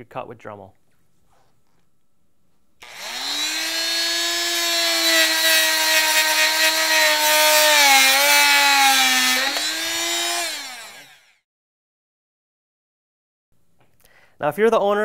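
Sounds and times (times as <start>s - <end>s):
oscillating multi-tool cutting wood: 2.8s - 11.4s.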